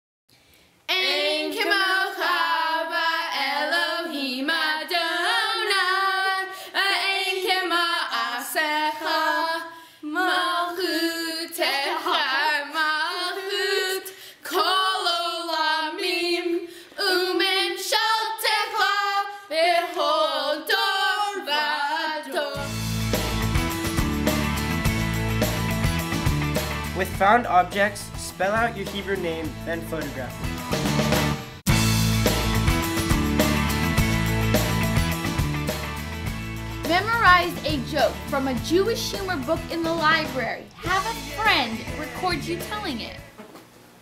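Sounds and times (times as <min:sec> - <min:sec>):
girls singing unaccompanied: 0:00.9 - 0:22.7, 0:39.2 - 0:43.0
instrumental music: 0:22.6 - 0:43.6.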